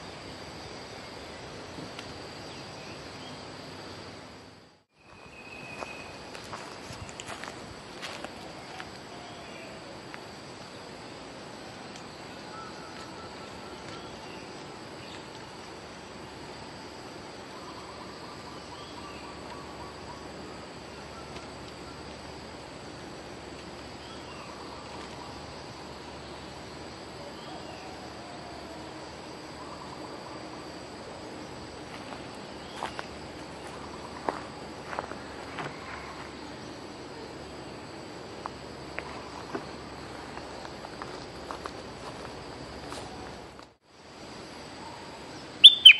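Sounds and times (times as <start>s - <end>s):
forest insects droning: 0.0s - 45.9s
whistled bird calls and chirps: 45.6s - 45.9s.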